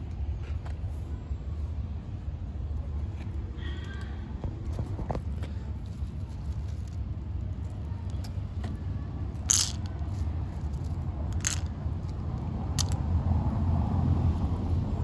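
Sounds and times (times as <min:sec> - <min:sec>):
street traffic rumble: 0:00.0 - 0:15.0
kibble clattering on stone: 0:09.4 - 0:13.0.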